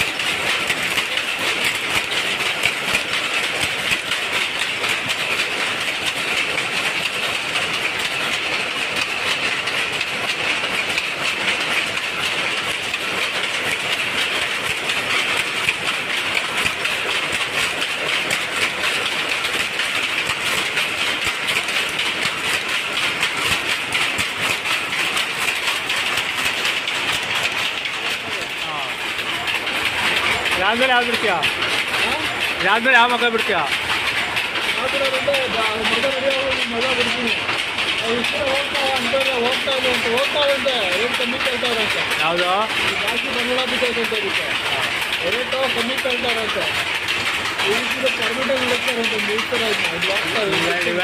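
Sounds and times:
power looms clattering: 0.0 - 51.0.

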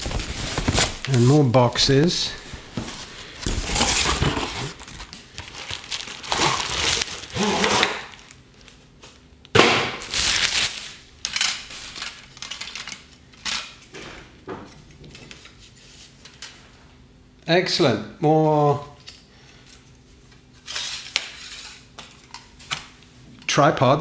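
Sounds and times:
cardboard rustling: 0.0 - 8.3
plastic wrapping crinkling: 0.0 - 9.2, 10.0 - 13.8.

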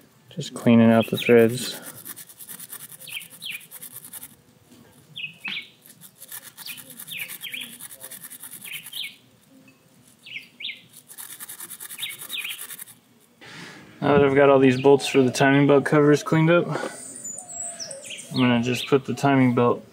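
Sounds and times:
small bird chirping: 2.6 - 4.3, 5.1 - 9.2, 10.2 - 13.0, 17.0 - 19.0
wire brush scrubbing bolt threads: 10.9 - 13.0.

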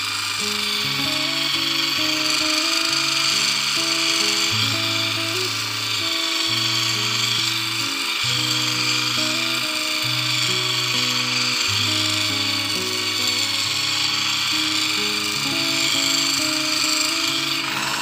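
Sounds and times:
electric drill grinding blade: 0.0 - 18.0.

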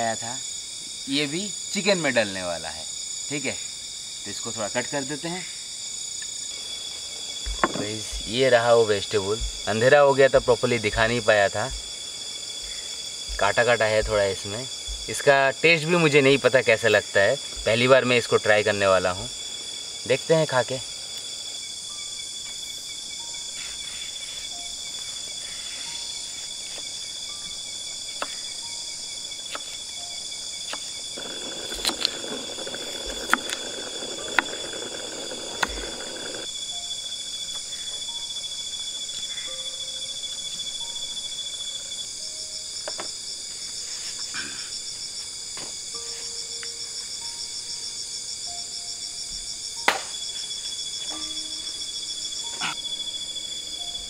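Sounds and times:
crickets and night insects chirping: 0.0 - 54.0
knife chopping on wooden board: 7.5 - 8.2.

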